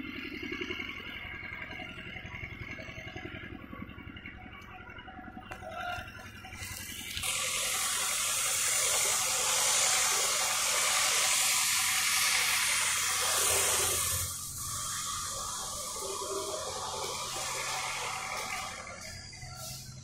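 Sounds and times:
loud steady hiss: 6.7s - 20.0s.

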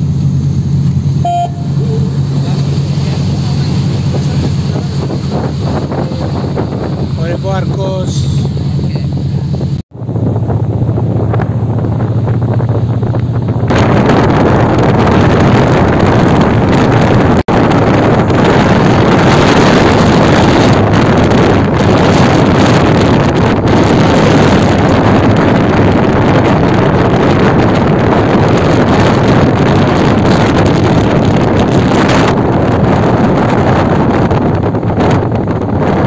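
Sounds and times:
ferry engines droning: 0.0s - 15.0s
wind buffeting microphone: 0.0s - 36.0s
water rushing past hull: 1.2s - 9.8s.

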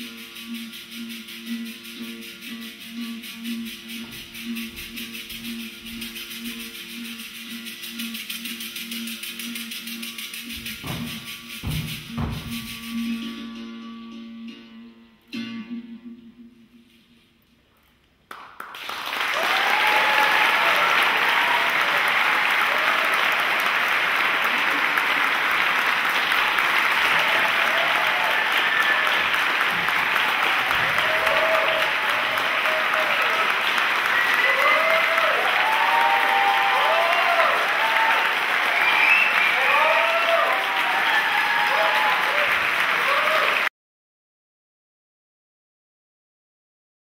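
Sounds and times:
audience applause: 18.3s - 43.7s
cheering shouts and whistles: 19.3s - 43.7s.

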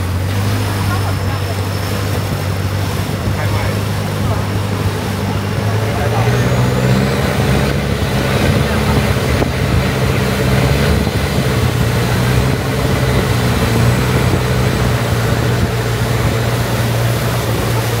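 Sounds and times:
motorboat engine droning: 0.0s - 18.0s.

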